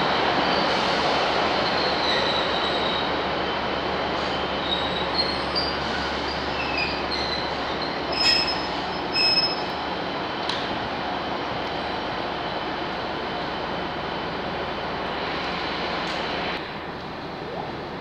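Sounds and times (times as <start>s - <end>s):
train running slowly: 0.0s - 18.0s
train wheels squealing: 0.4s - 3.1s, 4.2s - 9.8s.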